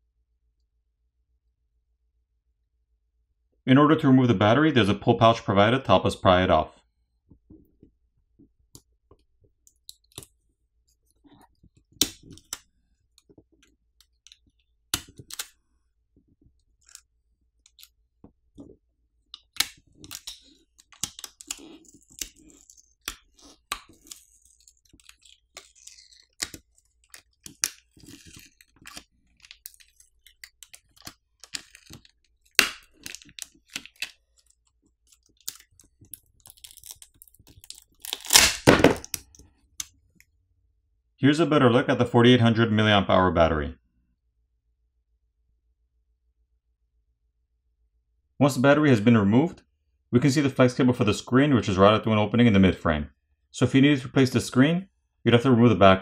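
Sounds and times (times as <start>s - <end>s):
plastic pouch crinkling: 19.8s - 39.3s
battery adhesive cracking: 35.1s - 39.3s.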